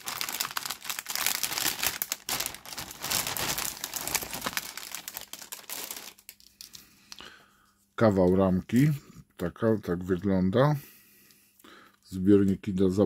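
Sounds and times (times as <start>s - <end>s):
plastic bag crinkling: 0.0s - 6.9s.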